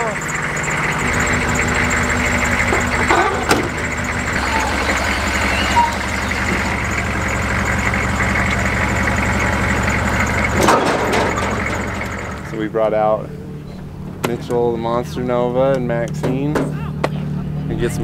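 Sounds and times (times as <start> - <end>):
car engine idling: 0.0 - 18.0
short clatter: 10.5 - 12.5.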